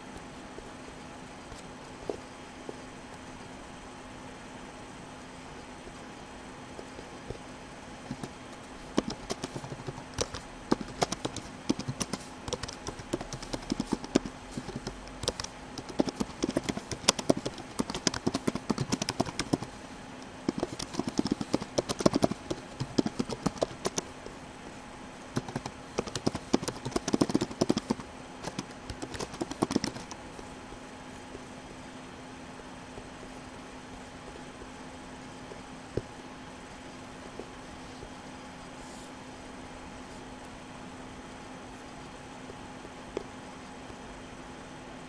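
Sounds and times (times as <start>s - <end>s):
faint steady hum: 0.0s - 45.0s
keyboard typing clicks: 8.9s - 19.7s, 20.5s - 24.1s, 25.4s - 30.2s.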